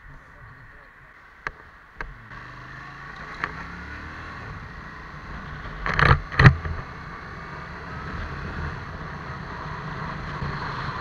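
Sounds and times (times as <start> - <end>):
vehicle engine and road rumble: 0.0 - 11.0
wind noise on camera: 4.4 - 7.1.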